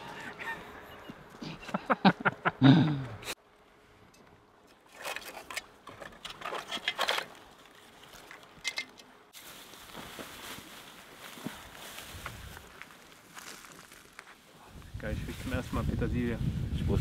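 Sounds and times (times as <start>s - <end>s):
plastic bag rustling: 9.4s - 14.5s.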